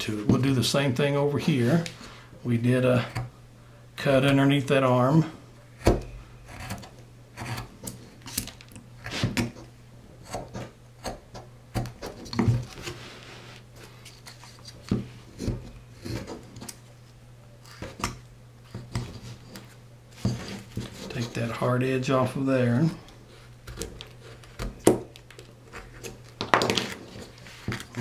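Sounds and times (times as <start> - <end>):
steady low hum: 0.0 - 28.0
knife scraping wood: 6.4 - 9.6.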